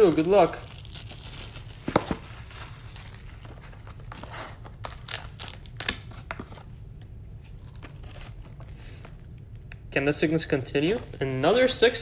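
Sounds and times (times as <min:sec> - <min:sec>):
card and foil snapping: 0:00.0 - 0:06.5
plastic wrapping crinkling: 0:00.0 - 0:06.8, 0:07.4 - 0:12.0
cardboard box being opened: 0:00.9 - 0:05.5.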